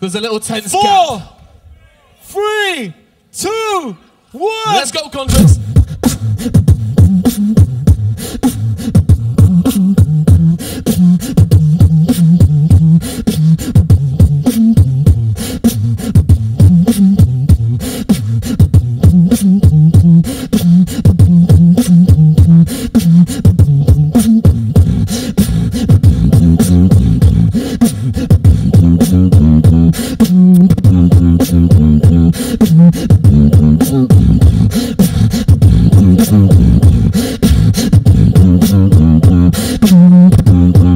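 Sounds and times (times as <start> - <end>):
beatboxing into a microphone: 4.7 - 40.9.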